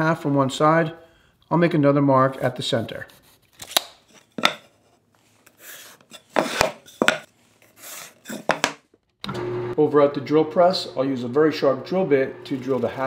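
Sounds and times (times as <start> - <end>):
scraping on workbench: 4.1 - 8.8
wood and tools knocking: 6.2 - 7.3, 8.3 - 8.8.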